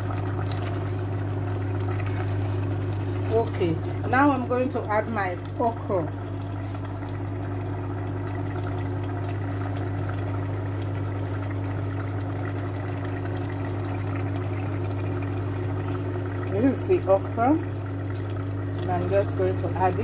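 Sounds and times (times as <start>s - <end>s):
liquid bubbling in a pot: 0.0s - 20.0s.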